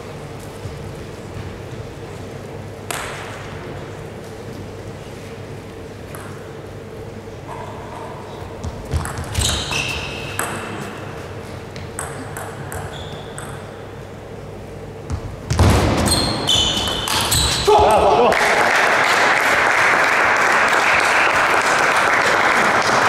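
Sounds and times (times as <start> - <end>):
table tennis ball bouncing: 2.9 - 3.5, 6.1 - 6.5, 8.6 - 10.8, 11.8 - 13.9, 15.1 - 17.6
table tennis serve hit: 2.9 - 3.6.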